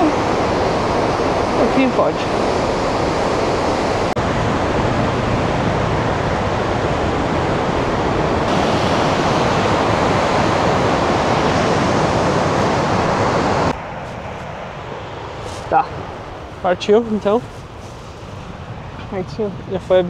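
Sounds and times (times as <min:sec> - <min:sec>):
waterfall rushing: 0:00.0 - 0:13.8.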